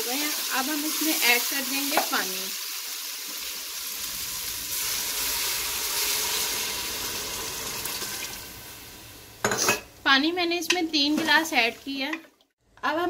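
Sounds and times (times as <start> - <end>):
sizzling in hot oil: 0.0 - 10.2.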